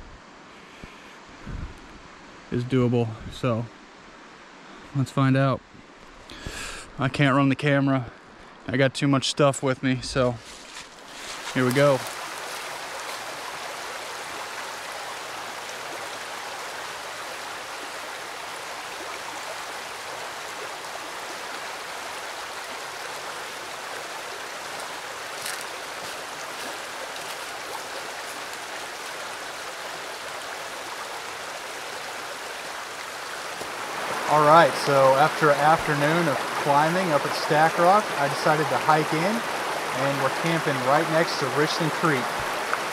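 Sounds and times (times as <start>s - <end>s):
creek flowing: 10.1s - 42.9s.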